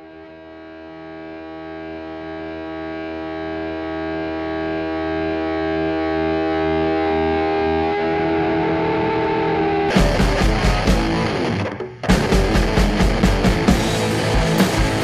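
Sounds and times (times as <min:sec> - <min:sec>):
distorted electric guitar chord: 0:00.0 - 0:15.0
full band playing noise rock: 0:09.8 - 0:15.0
loud drum hits: 0:09.9 - 0:15.0.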